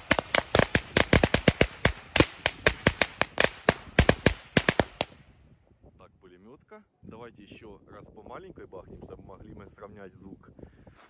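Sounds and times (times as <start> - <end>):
firecracker bangs: 0.0 - 5.2.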